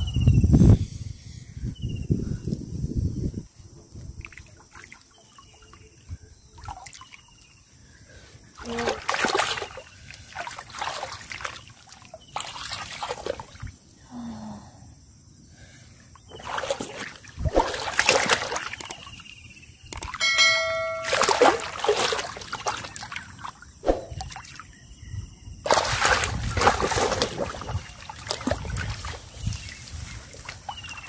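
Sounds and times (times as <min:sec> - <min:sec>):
hands splashing in muddy water: 0:08.6 - 0:13.7, 0:16.3 - 0:19.1, 0:21.0 - 0:24.6, 0:25.6 - 0:31.0
water trickling: 0:20.0 - 0:23.6.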